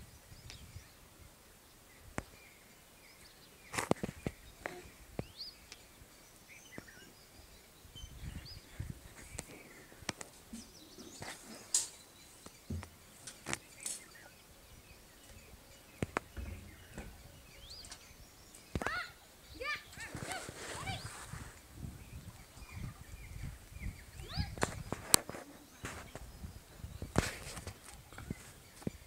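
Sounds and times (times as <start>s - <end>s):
faint bird chirps: 1.7s - 21.3s, 22.0s - 29.0s
dull thuds: 12.7s - 13.0s, 16.0s - 17.3s.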